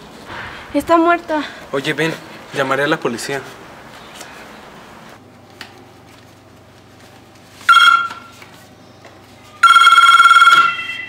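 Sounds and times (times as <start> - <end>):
telephone ringing electronically: 7.6 - 8.4, 9.6 - 11.0.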